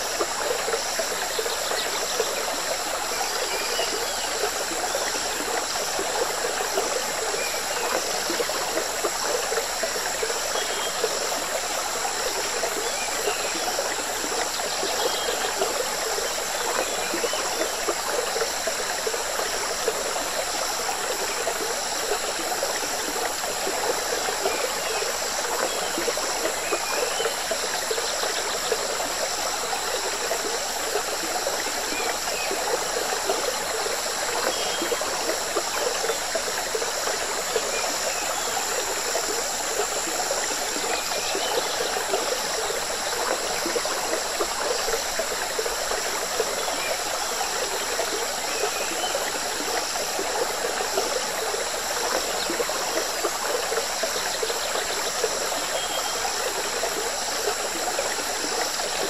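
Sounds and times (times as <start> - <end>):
river stream bubbling: 0.0 - 59.0.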